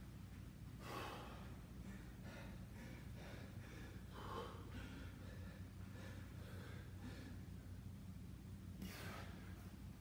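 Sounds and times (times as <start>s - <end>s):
low room hum: 0.0s - 10.0s
man breathing heavily: 0.6s - 7.9s, 8.8s - 9.9s.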